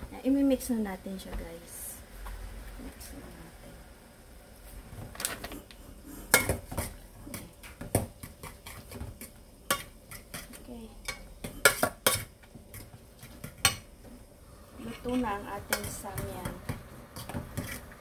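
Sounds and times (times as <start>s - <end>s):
utensil scraping metal pot: 14.8s - 18.0s.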